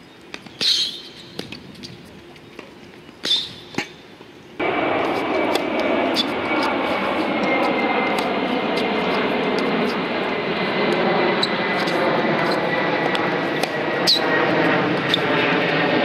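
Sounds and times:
steady background hum: 0.0 - 16.0
tennis ball hit by racket: 5.0 - 6.3, 11.8 - 13.8.

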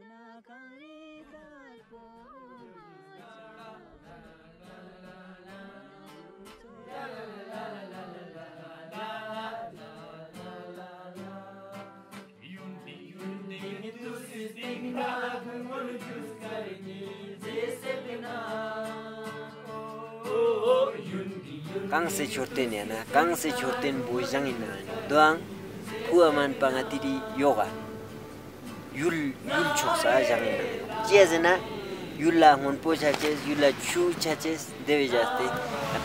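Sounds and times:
person singing slow melody: 11.2 - 36.0.

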